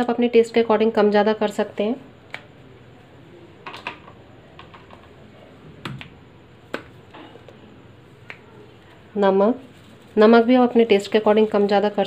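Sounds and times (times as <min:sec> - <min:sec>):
plastic jars clicking: 0:03.6 - 0:05.2.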